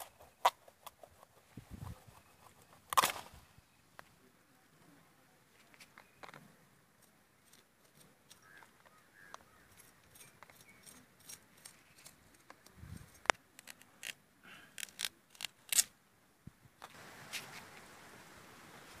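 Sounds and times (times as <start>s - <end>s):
faint hiss: 11.8s - 19.0s.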